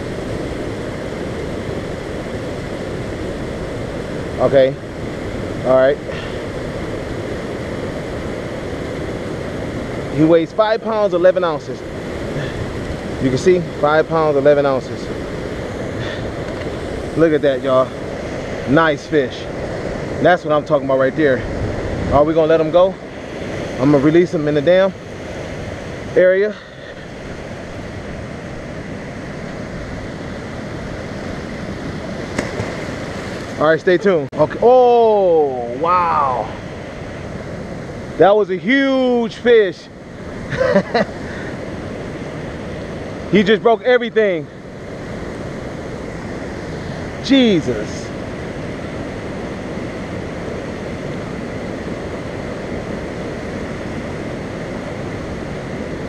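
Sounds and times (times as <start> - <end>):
river water rushing over dam: 0.0 - 56.0.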